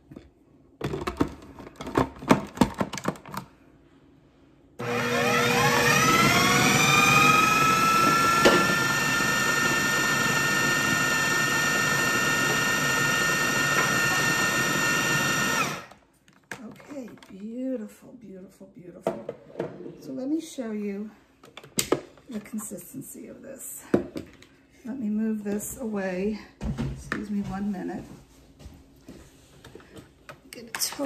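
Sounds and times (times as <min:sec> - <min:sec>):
food processor motor whining: 0:04.8 - 0:16.0.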